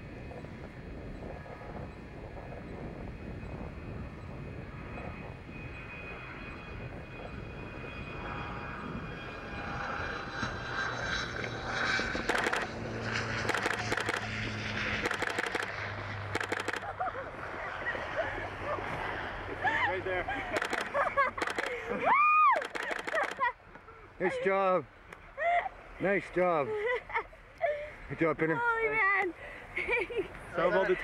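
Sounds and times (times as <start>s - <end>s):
aircraft engine droning: 0.0s - 31.0s
rapid buzzing pulses: 0.2s - 19.5s, 20.3s - 21.9s, 22.6s - 23.7s.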